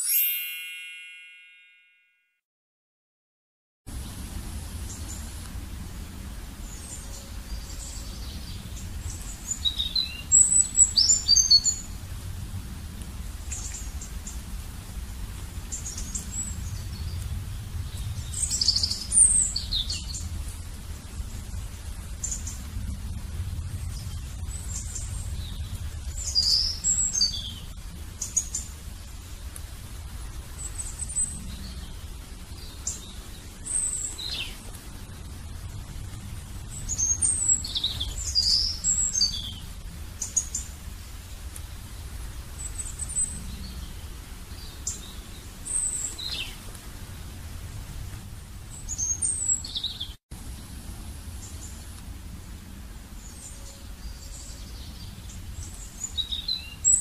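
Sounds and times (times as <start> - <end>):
low steady rumble: 3.9 - 45.6
birds chirping: 4.8 - 12.0, 23.9 - 28.8, 36.6 - 46.8.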